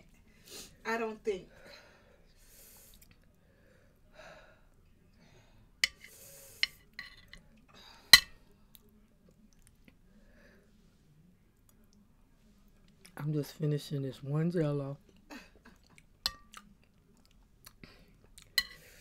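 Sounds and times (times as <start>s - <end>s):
spoon clinking on ceramic bowl: 16.3s - 16.5s.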